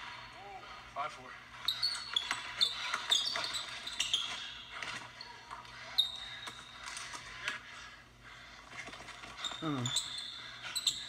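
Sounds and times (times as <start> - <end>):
sneakers squeaking: 1.6 - 7.0, 8.8 - 11.0.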